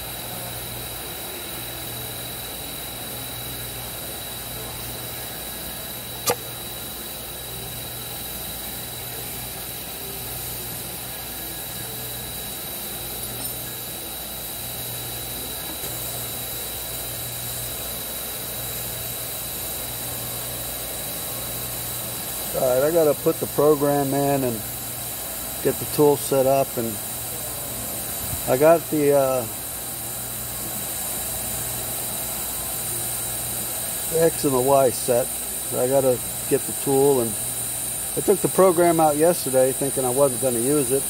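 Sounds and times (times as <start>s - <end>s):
intermittent low hum: 0.0s - 41.0s
shop machinery hum: 0.0s - 41.0s
sharp click: 6.2s - 6.5s.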